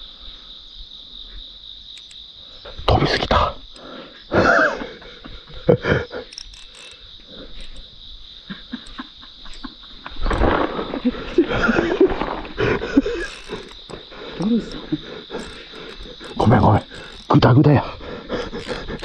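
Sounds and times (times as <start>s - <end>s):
crickets chirring: 0.0s - 19.0s
fishing rod and line rustling: 6.3s - 7.9s, 9.5s - 17.3s, 18.4s - 19.0s.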